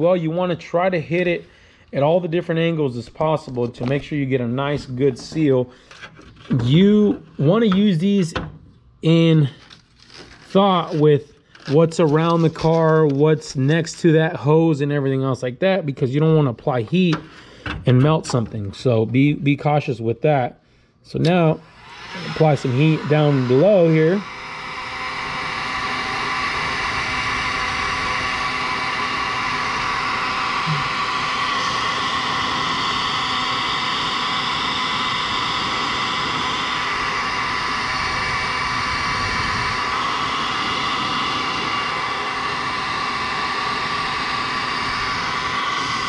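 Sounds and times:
heat gun blowing with motor whine: 9.1s - 14.0s, 21.1s - 46.0s.

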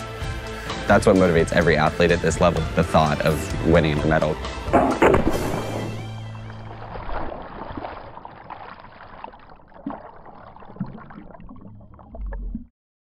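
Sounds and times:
sharp knocks: 4.7s - 6.1s
low thump: 4.7s - 6.2s
underwater bubbles and churning: 5.2s - 12.7s.

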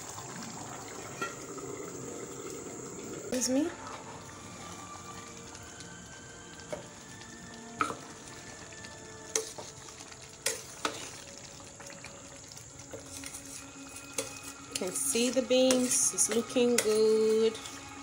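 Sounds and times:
pot simmering and bubbling: 0.0s - 18.0s
metal spoon scraping a pot: 12.9s - 18.0s.

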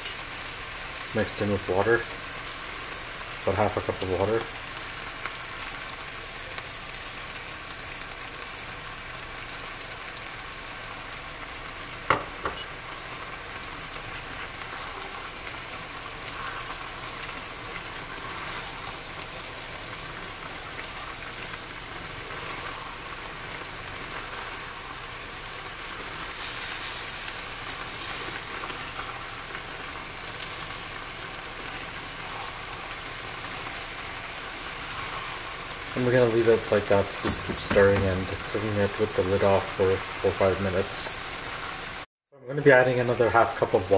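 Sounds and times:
vegetables sizzling in a pan: 0.0s - 42.1s, 42.7s - 43.9s
stirring in a pan: 9.4s - 41.9s.

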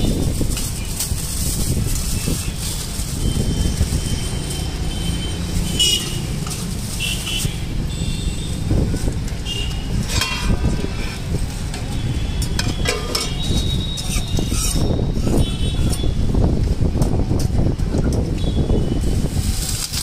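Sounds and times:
traffic rumble: 0.0s - 20.0s
wind: 0.0s - 20.0s
ladle clinking on pots and plates: 10.0s - 10.9s, 12.4s - 14.8s.

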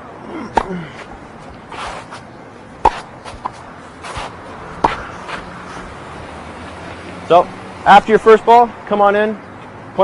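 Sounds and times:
tennis ball struck with racket: 0.5s - 0.8s, 2.8s - 5.5s.

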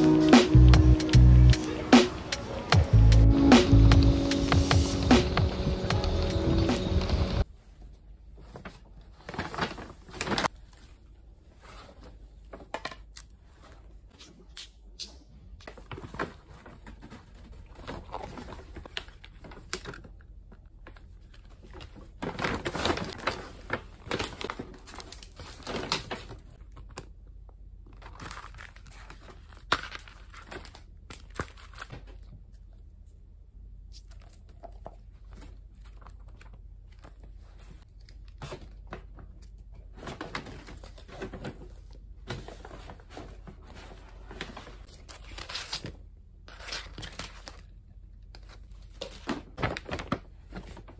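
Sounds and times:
paper bag rustling: 8.4s - 12.6s, 20.8s - 26.8s, 48.4s - 50.9s.

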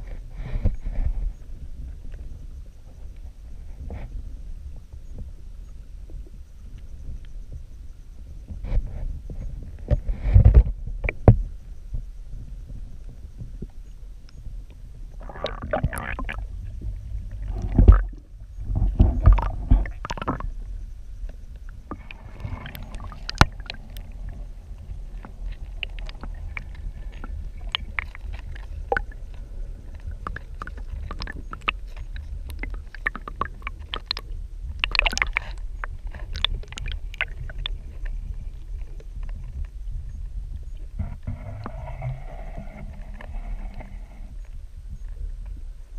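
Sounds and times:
muffled underwater water rumble: 0.0s - 45.9s
small clicks and ticks: 21.2s - 40.9s.

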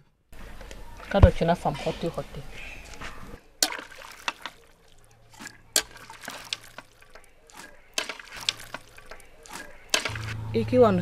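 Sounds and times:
dripping liquid: 3.6s - 10.4s.

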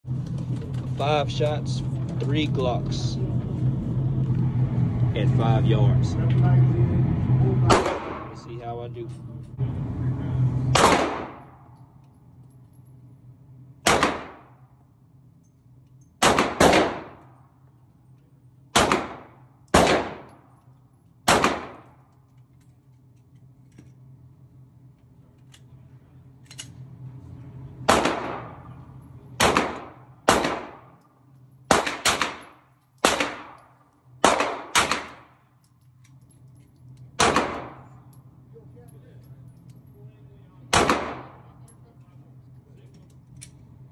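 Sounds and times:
pistol shots ringing indoors: 7.7s - 8.4s, 10.7s - 11.8s, 13.8s - 14.8s, 16.1s - 17.4s, 18.7s - 20.6s, 21.2s - 22.1s, 27.9s - 28.8s, 29.4s - 36.2s, 36.8s - 38.0s, 40.7s - 41.7s.

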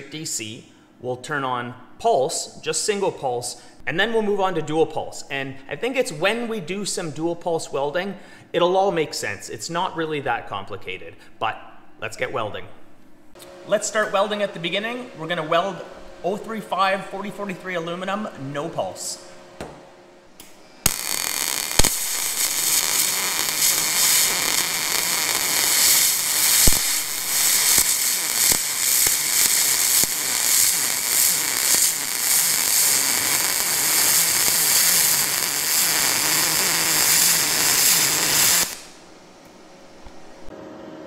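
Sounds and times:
sharp welding pops: 20.4s - 39.0s
welding arc crackling: 20.8s - 39.0s.

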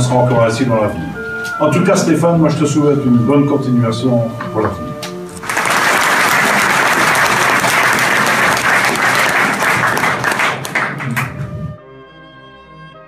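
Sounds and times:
audience applauding: 5.4s - 11.5s.

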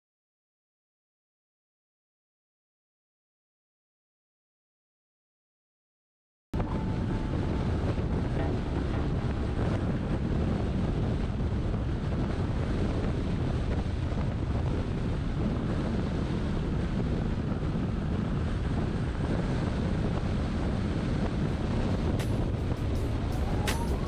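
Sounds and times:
vehicle wind and road noise: 6.6s - 24.0s
wind buffeting microphone: 6.6s - 24.0s.

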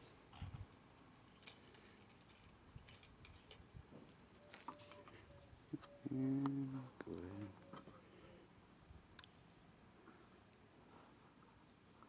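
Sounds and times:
low voice-like sound: 6.0s - 7.7s.

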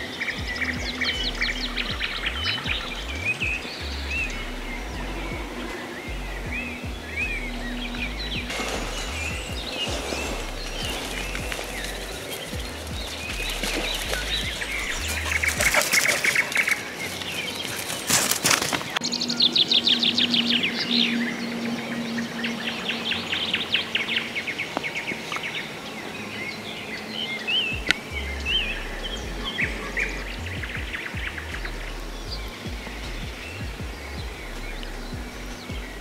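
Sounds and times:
low steady hum: 0.0s - 15.8s, 27.7s - 36.0s
songbirds singing: 0.0s - 36.0s.

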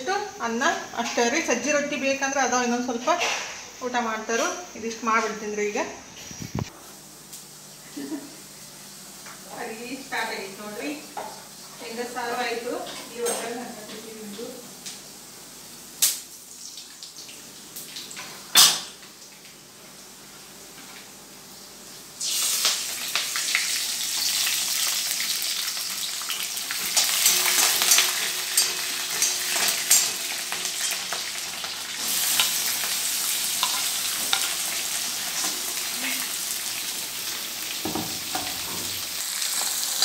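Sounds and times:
oil sizzling with crackles: 4.3s - 40.0s
onions stirred in pan: 22.2s - 40.0s.

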